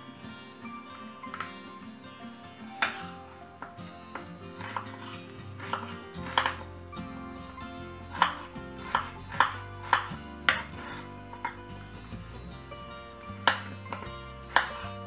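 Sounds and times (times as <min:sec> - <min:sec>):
background music: 0:00.0 - 0:15.0
knife chopping on wooden board: 0:02.8 - 0:03.0, 0:03.6 - 0:06.7, 0:08.1 - 0:11.6, 0:13.4 - 0:15.0.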